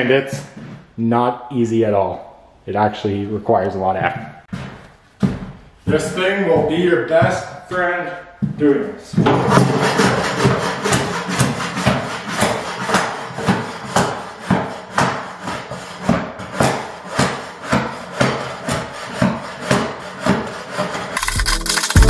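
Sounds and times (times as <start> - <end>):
shovel scraping wooden floor: 9.2 - 22.0.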